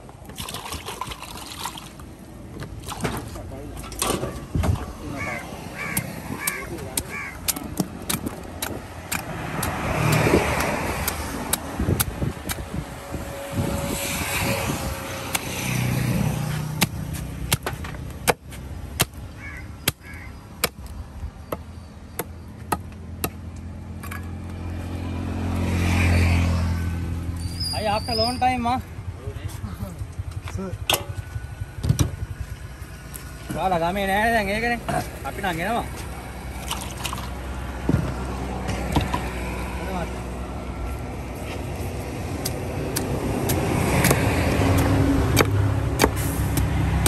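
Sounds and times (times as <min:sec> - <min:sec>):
vehicles passing by: 0:00.0 - 0:47.0
knife chopping fish on wooden block: 0:05.9 - 0:12.6.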